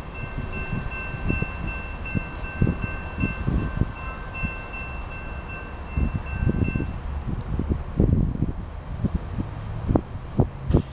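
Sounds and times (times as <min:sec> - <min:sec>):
railroad crossing bell ringing: 0:00.0 - 0:07.1
wind buffeting microphone: 0:00.0 - 0:10.9.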